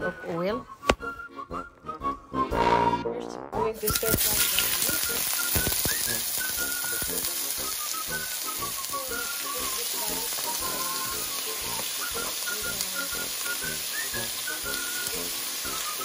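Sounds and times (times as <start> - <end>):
background music: 0.0 - 16.0
pork sizzling in hot oil: 3.8 - 16.0.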